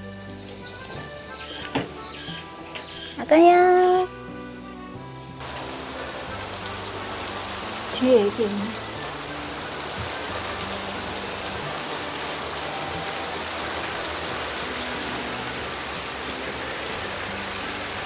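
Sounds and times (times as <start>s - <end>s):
steady heavy rain: 0.0s - 18.0s.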